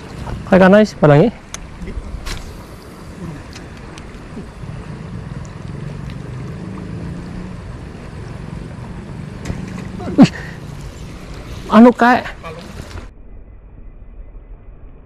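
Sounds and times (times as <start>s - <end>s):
wind rumbling on microphone: 0.0s - 10.2s
flowing river: 0.0s - 13.1s.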